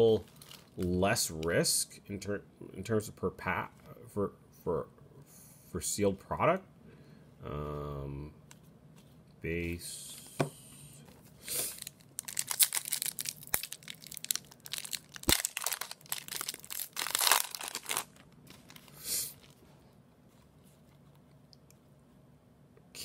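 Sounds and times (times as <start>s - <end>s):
foil wrapper crinkling and tearing: 0.1s - 0.9s, 11.6s - 19.6s.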